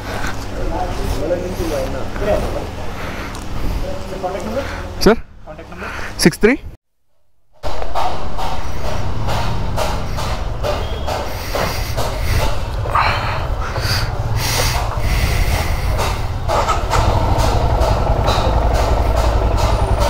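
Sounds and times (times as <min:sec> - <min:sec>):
motorcycle engine idling: 0:07.6 - 0:20.0.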